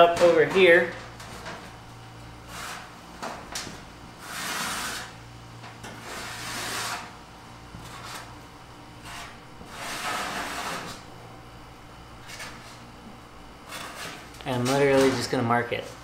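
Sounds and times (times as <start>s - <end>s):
marker scraping on sheet metal: 4.2s - 5.2s, 6.0s - 7.1s, 9.0s - 11.0s, 13.7s - 15.2s.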